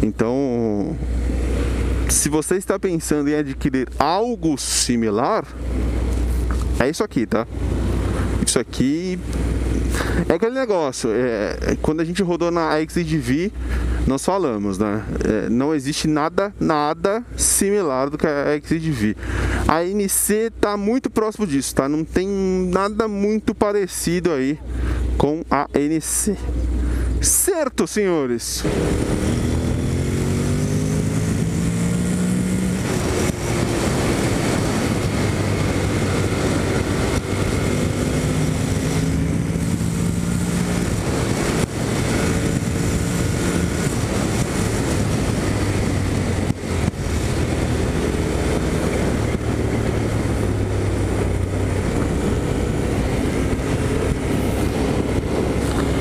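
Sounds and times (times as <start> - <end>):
wind and road noise: 0.0 - 56.0
motorcycle engine accelerating: 0.8 - 2.2, 28.6 - 56.0.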